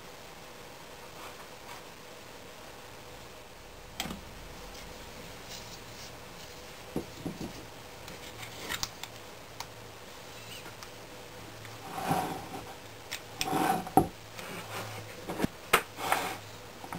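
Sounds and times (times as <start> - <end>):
faint steady hiss: 0.0 - 16.9.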